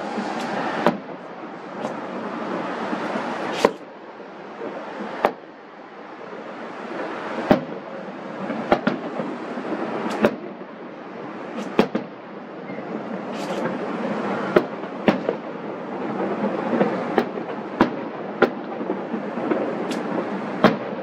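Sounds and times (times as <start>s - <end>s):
fireworks bursting: 0.0s - 21.0s
steady rush of noise: 0.0s - 21.0s.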